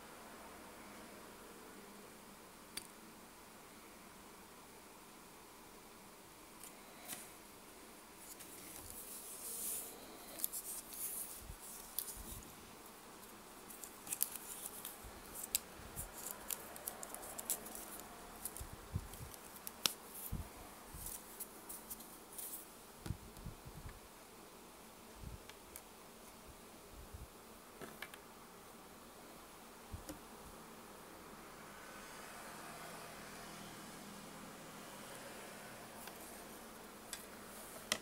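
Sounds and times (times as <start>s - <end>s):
watch strap clicks and rustles: 13.7s - 20.3s.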